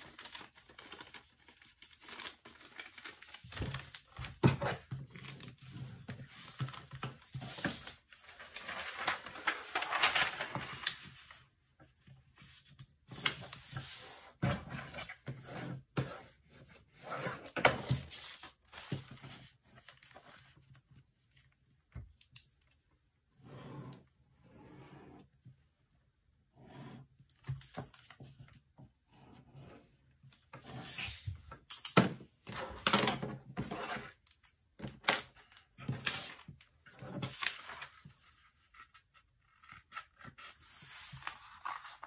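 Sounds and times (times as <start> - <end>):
paper rustling and crinkling: 0.0 - 15.4, 16.3 - 21.6, 32.4 - 42.0.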